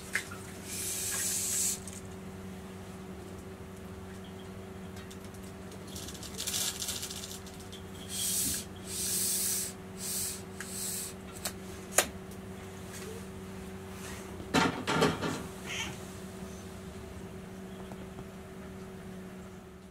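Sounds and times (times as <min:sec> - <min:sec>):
cat meowing: 0:15.7 - 0:16.0.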